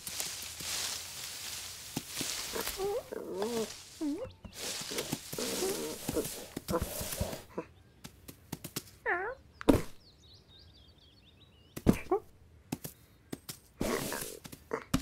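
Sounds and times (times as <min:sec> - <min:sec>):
faint bird chirps: 0:09.0 - 0:12.3.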